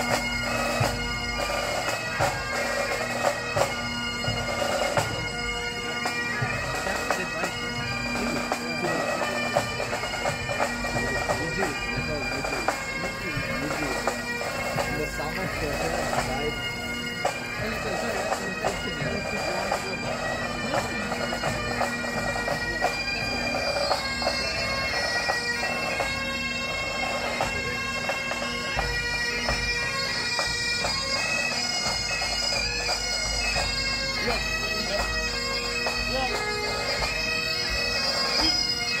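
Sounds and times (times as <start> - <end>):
bagpipe melody over drones: 0.0 - 39.0.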